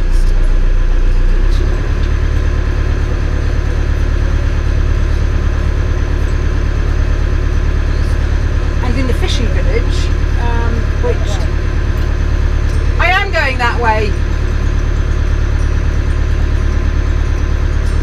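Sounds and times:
boat engine running: 0:00.0 - 0:18.0.

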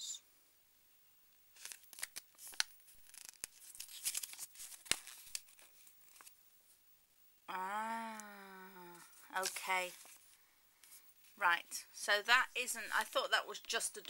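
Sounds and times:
paper rustling and crinkling: 0:01.5 - 0:06.3, 0:09.4 - 0:11.0.

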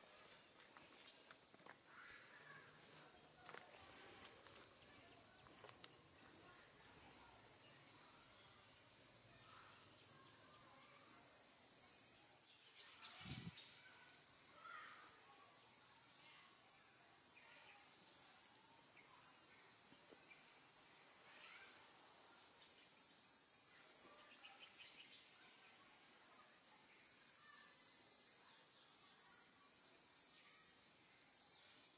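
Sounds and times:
faint insect chirps: 0:00.0 - 0:31.9
high-pitched insect chorus: 0:00.0 - 0:31.9.

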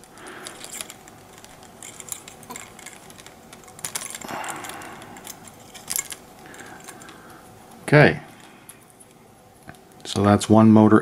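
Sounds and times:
plastic parts clicking and rubbing: 0:00.0 - 0:07.4.

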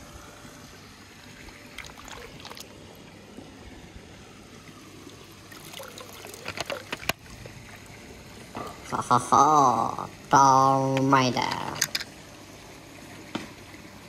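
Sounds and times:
pool water sloshing: 0:00.0 - 0:14.0
water splashing and dripping: 0:01.2 - 0:03.5, 0:04.6 - 0:10.2.

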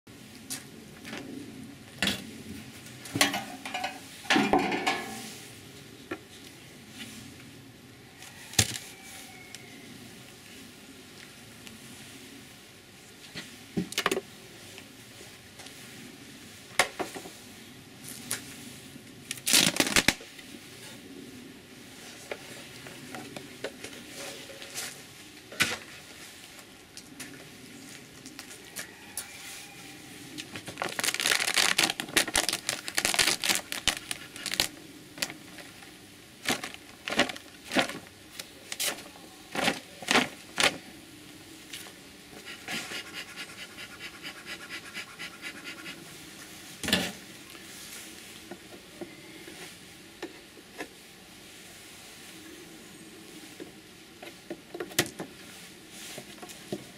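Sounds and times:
plastic foil crinkling: 0:19.3 - 0:20.2, 0:30.6 - 0:38.0.

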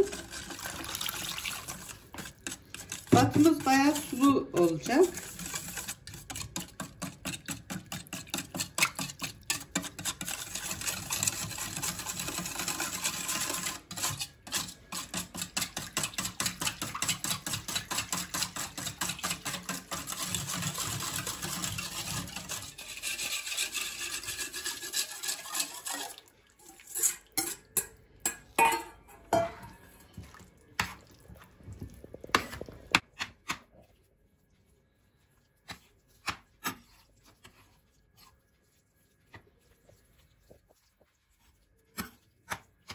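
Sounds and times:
whisk clinking in metal bowl: 0:00.0 - 0:29.8.

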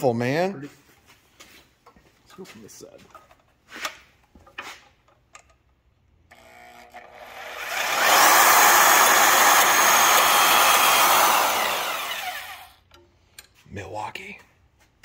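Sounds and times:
band saw starting: 0:06.3 - 0:12.8
saw blade cutting metal: 0:06.6 - 0:12.8.

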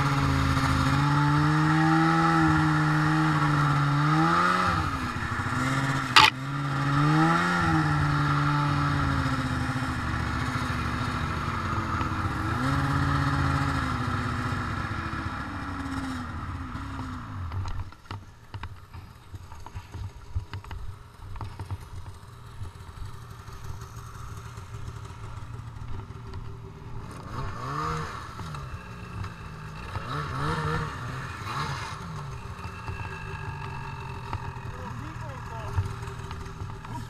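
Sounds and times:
snowmobile engine idling and revving: 0:00.0 - 0:37.0
scattered clicks and knocks: 0:06.1 - 0:06.4, 0:35.7 - 0:36.9.

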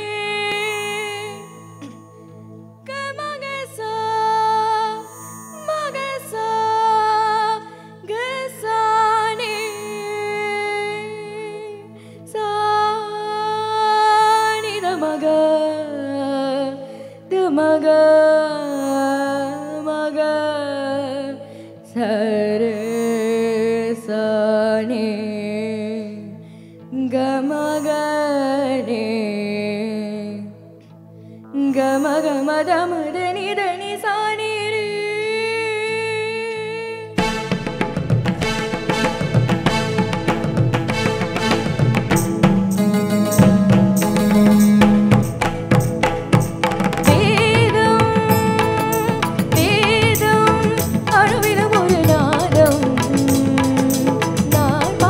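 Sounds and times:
girl singing into microphone: 0:00.0 - 0:02.0, 0:02.8 - 0:26.3, 0:26.9 - 0:30.6, 0:31.4 - 0:37.2, 0:47.1 - 0:55.0
keyboard and guitar band: 0:37.2 - 0:55.0.

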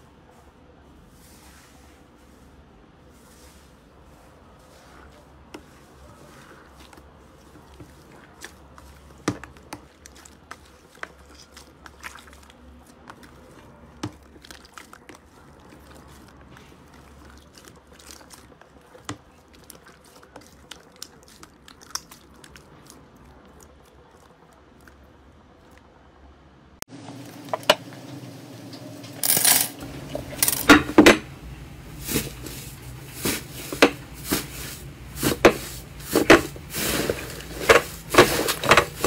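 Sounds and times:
hands kneading slime: 0:01.0 - 0:25.9.

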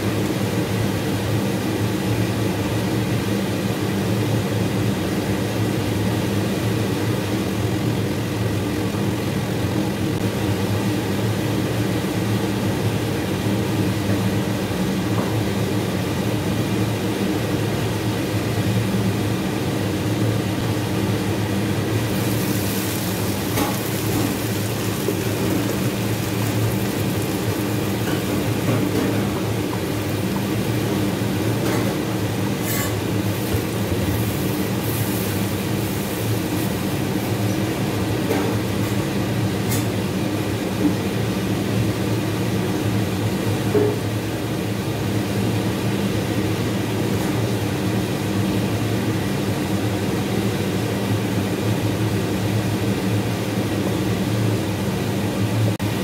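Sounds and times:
spices sizzling in hot oil: 0:21.8 - 0:37.9.

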